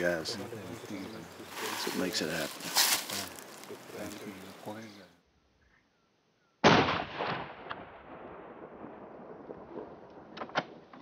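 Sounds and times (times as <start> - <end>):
faint steady hiss: 0.0 - 5.2
rifle shot: 6.6 - 11.0.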